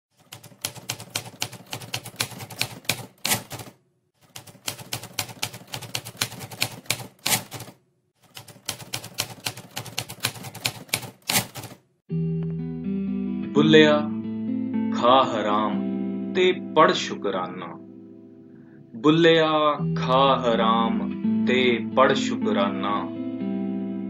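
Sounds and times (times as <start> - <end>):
typewriter keys clacking: 0.2 - 11.8.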